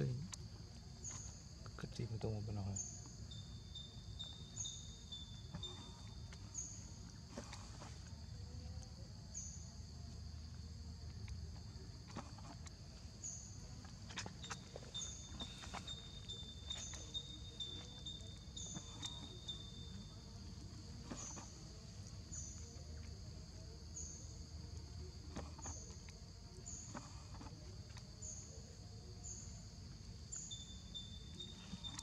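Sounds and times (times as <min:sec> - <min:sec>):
insect high-pitched whine: 0:00.0 - 0:32.0
insect short high chirp: 0:02.6 - 0:07.9, 0:13.2 - 0:27.6, 0:28.2 - 0:32.0.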